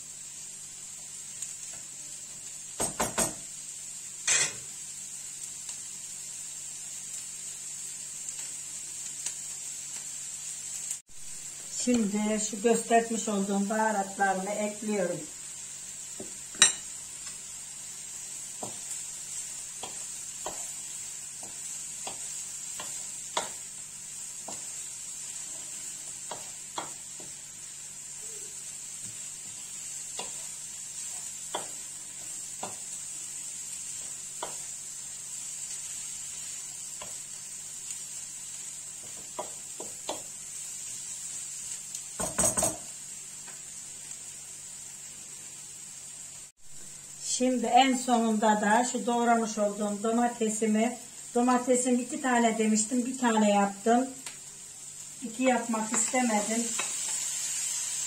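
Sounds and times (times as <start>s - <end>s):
vegetables and meat sizzling: 0.0s - 58.0s
wooden spatula knocking on pan: 2.8s - 3.5s, 18.6s - 18.9s, 39.0s - 40.3s, 42.2s - 42.9s.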